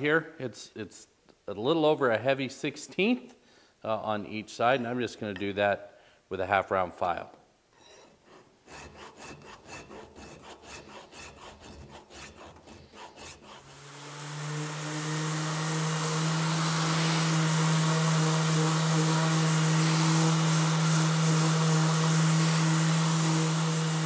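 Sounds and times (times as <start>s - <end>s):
file scraping through wood: 7.8s - 20.7s
orbit sander running: 13.5s - 24.0s.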